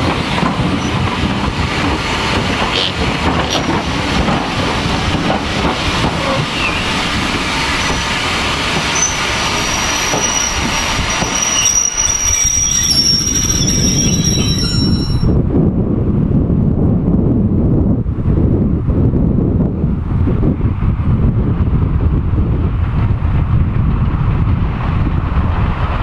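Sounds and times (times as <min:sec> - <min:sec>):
train wheels rumbling and clattering: 0:00.0 - 0:26.0
wind rumbling on microphone: 0:00.0 - 0:26.0
high-pitched wheel squeal: 0:06.2 - 0:07.0, 0:08.9 - 0:15.4.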